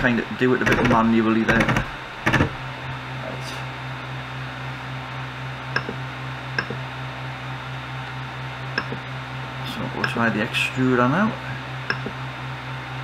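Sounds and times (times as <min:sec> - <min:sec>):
printer humming: 0:00.0 - 0:13.0
control knob clicks: 0:05.8 - 0:06.0, 0:06.6 - 0:06.8, 0:08.8 - 0:09.0, 0:11.9 - 0:12.2.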